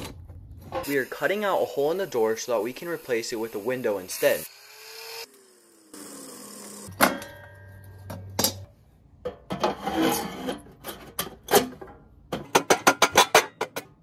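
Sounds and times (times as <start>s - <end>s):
angle grinder whine: 0.9s - 7.0s
metal pipe scraping metal: 9.5s - 11.7s.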